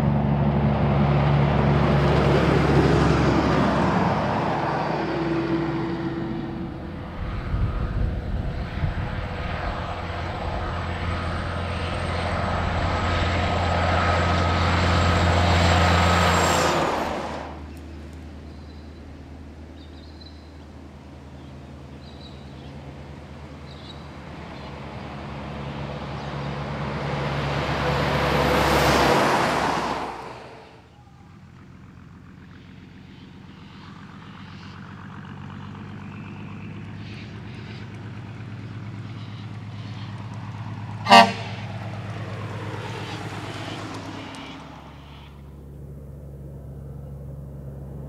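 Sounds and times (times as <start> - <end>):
diesel engine running: 0.0 - 48.0
diesel truck passing: 0.0 - 48.0
air horn blast: 41.0 - 41.7.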